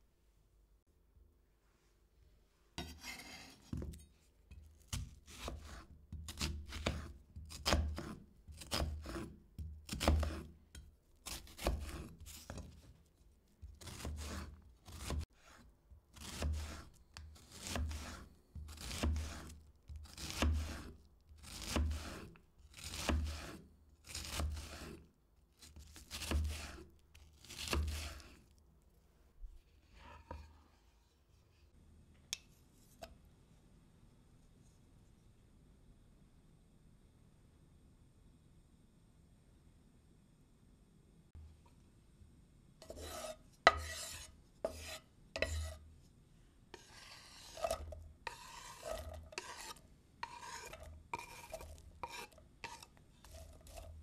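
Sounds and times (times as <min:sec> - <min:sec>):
knife slicing onto cutting board: 0:02.8 - 0:04.1, 0:04.8 - 0:09.3, 0:09.9 - 0:10.5, 0:11.2 - 0:12.8, 0:13.8 - 0:15.6, 0:16.2 - 0:25.0, 0:25.7 - 0:26.8, 0:27.4 - 0:28.4, 0:42.8 - 0:45.8, 0:46.8 - 0:54.0.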